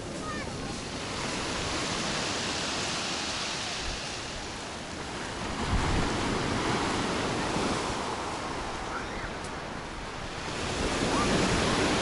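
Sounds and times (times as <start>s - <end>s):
storm surf washing onto shore: 0.0s - 12.0s
wind buffeting microphone: 3.8s - 12.0s.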